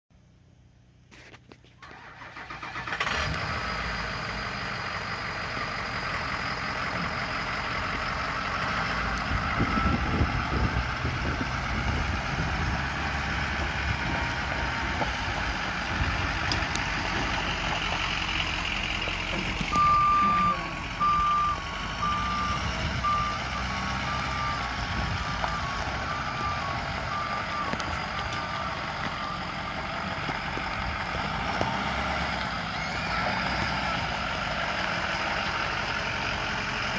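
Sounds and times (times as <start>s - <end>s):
truck engine running: 0.2s - 36.9s
backup alarm beeping: 19.7s - 29.6s.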